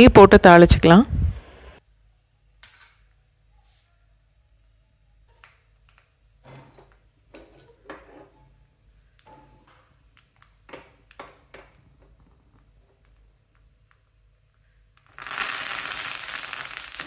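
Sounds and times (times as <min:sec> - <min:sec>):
seeds frying in oil: 0:15.0 - 0:17.0.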